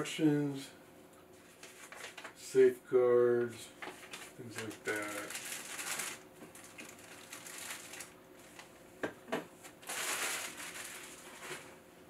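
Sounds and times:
plastic bag rustling and crinkling: 1.4 - 2.4, 3.8 - 8.8, 9.6 - 11.8.

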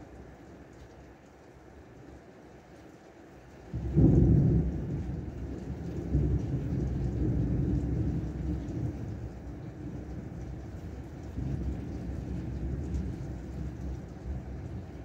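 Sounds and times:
thunder cracking and rumbling: 3.7 - 15.0.

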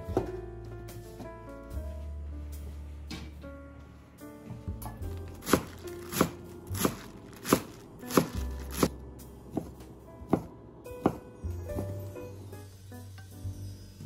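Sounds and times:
knife chopping on wooden board: 5.3 - 8.9, 9.5 - 11.2.

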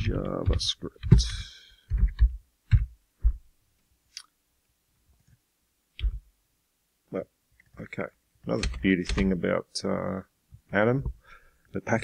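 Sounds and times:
keyboard keystrokes: 8.5 - 9.3.

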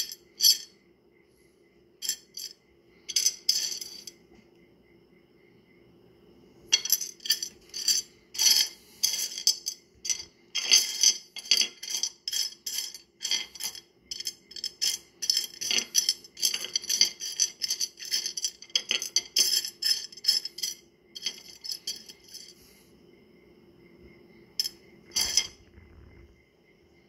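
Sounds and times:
stones clinking together: 24.6 - 26.1.

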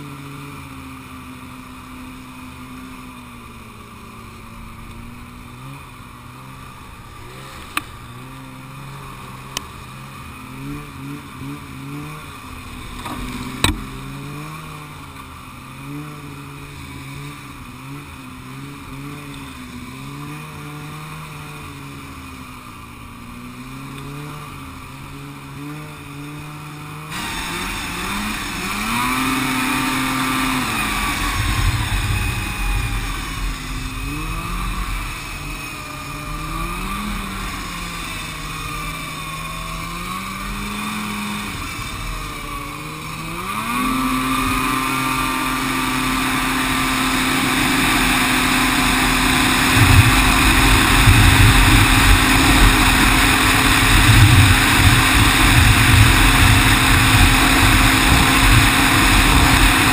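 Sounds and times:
snowmobile engine revving: 0.0 - 59.9
rushing noise: 27.0 - 59.9.

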